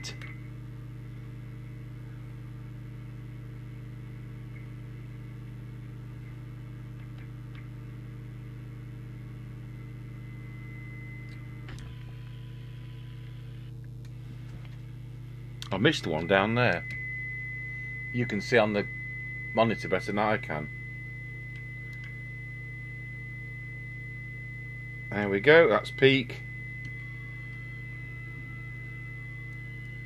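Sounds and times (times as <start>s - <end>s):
electrical mains hum: 0.0s - 30.0s
radio click: 11.2s - 14.8s.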